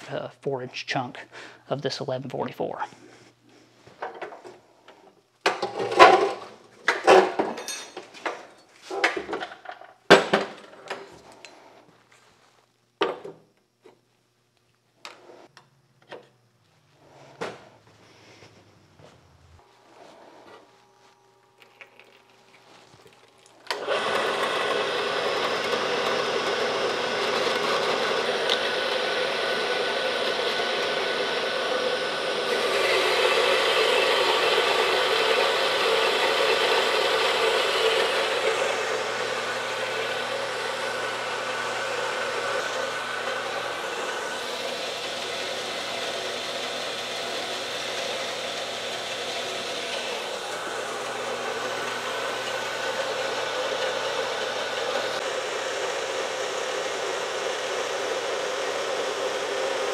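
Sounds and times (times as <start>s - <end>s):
bandsaw cutting steel: 23.7s - 59.9s.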